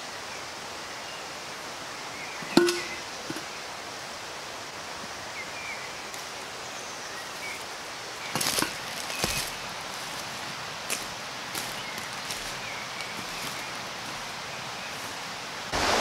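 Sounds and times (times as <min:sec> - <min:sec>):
forest background: 0:00.0 - 0:16.0
metal cup clinking: 0:02.4 - 0:03.5
footsteps in dry leaves: 0:07.0 - 0:15.7.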